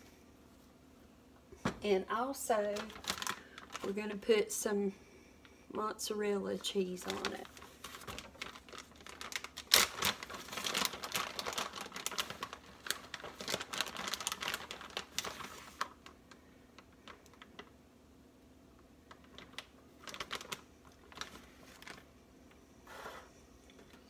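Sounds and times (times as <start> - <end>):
plastic bag crinkling: 2.3 - 4.3, 6.6 - 17.7, 19.0 - 22.2.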